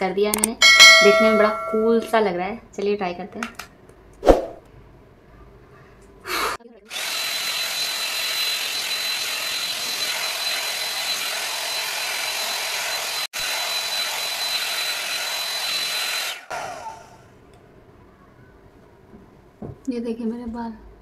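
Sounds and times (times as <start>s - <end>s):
hot air styler blowing: 6.3s - 17.2s.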